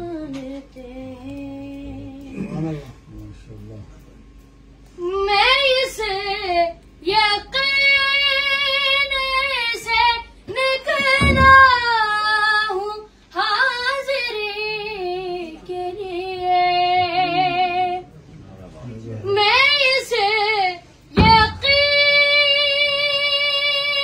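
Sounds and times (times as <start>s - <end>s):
dull low thump: 11.0s - 11.8s, 21.2s - 22.0s.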